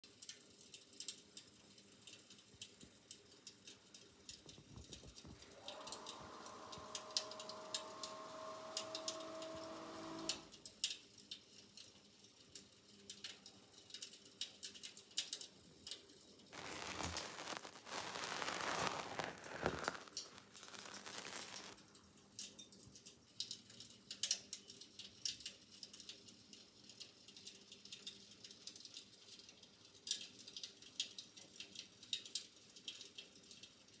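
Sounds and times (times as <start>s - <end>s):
fire crackling sound effect: 16.6s - 21.8s.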